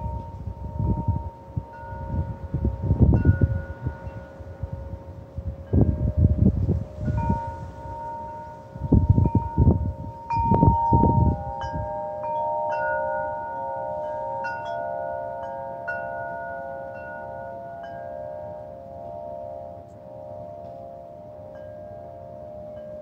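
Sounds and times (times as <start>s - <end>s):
wind gusts on microphone: 0.0s - 15.1s
wind chimes ringing: 0.0s - 23.0s.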